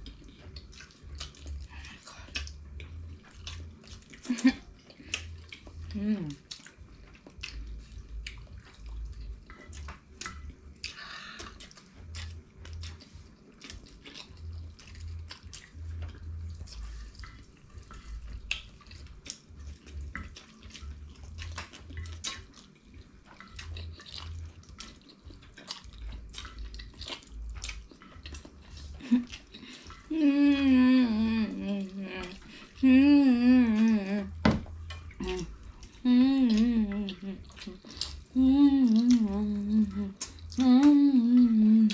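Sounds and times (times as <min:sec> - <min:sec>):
spaghetti chewing and slurping: 0:00.0 - 0:41.9
person humming: 0:05.9 - 0:06.4, 0:30.1 - 0:34.5, 0:35.2 - 0:41.9.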